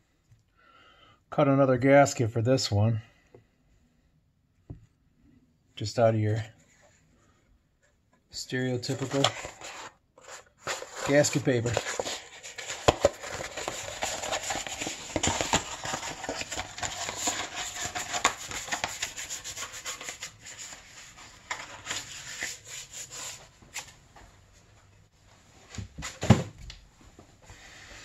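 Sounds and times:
rubbing and scraping: 8.8 - 23.5.

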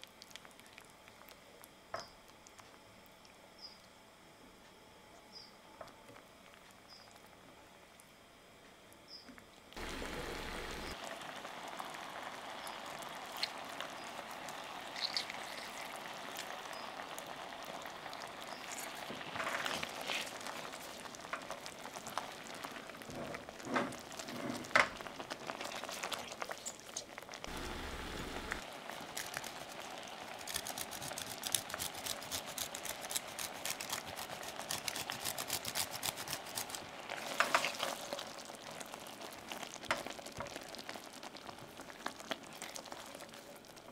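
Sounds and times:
sauce bubbling and popping in a pan: 0.0 - 3.4, 9.8 - 27.6, 36.3 - 43.9
spatula stirring: 18.2 - 27.2, 29.0 - 41.1.

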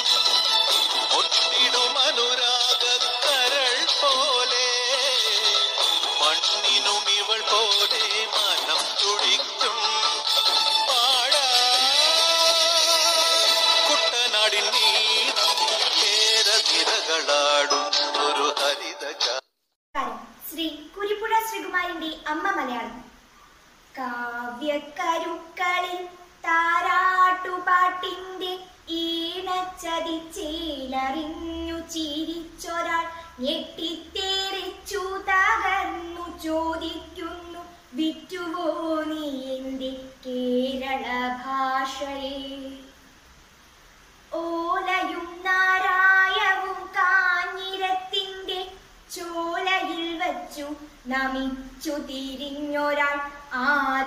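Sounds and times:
girl singing solo: 44.3 - 54.0.

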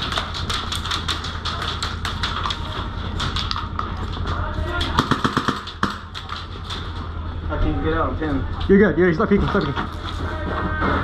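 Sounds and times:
bbs hitting plywood walls: 0.0 - 7.0
airsoft gun fire: 4.9 - 6.1.

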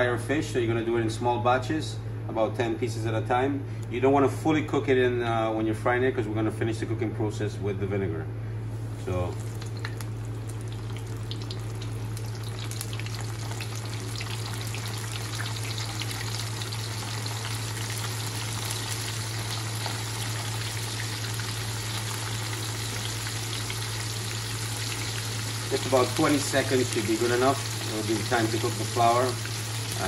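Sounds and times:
steady low hum: 0.0 - 30.0
fish sizzling in hot oil: 9.4 - 30.0.

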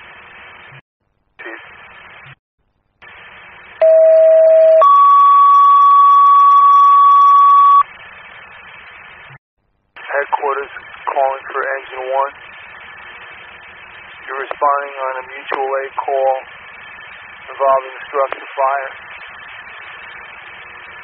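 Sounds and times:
radio channel hiss: 1.4 - 2.4, 3.0 - 3.8, 10.0 - 21.0
two-tone alert tones: 3.8 - 7.8.

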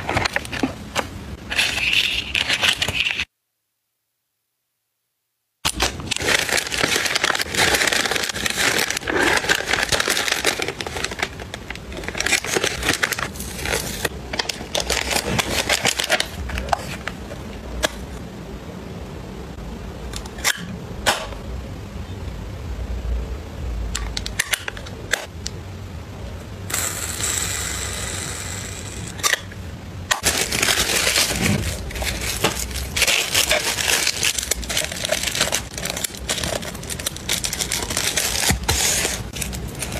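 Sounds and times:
plastic sachets rustling: 5.7 - 17.2, 30.1 - 39.9.

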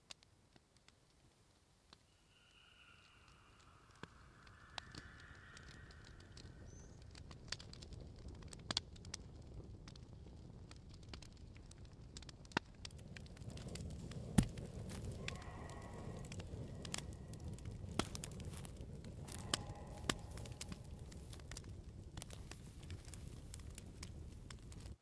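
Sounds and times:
small crackles and clicks: 0.0 - 25.0
faint held tones: 2.1 - 7.0.

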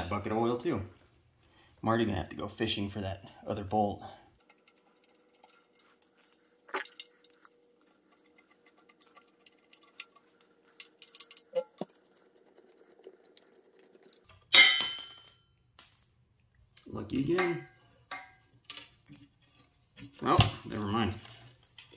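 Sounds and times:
metal part dropping and clanging: 14.5 - 16.0.

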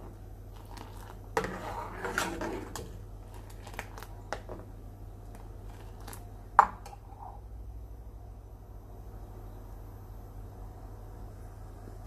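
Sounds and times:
ladle scraping a steel saucepan: 0.0 - 4.6.

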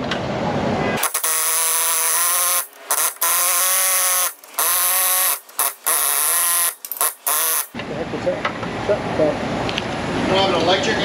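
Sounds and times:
air chisel hammering: 1.0 - 7.8.

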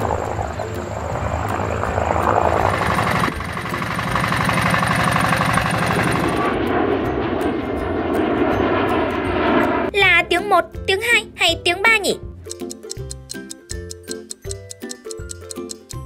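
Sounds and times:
airplane engine noise: 0.0 - 9.9
fast even chopping rhythm: 12.5 - 16.0.

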